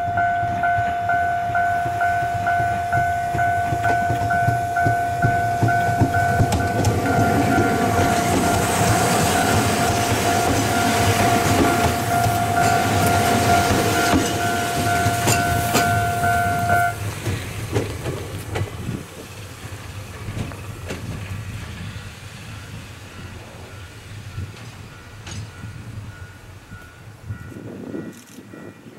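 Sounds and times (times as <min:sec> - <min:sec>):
high ringing tone: 0:00.0 - 0:17.0
electric train passing: 0:00.0 - 0:28.9
wheels clicking over rail joints: 0:00.1 - 0:22.1.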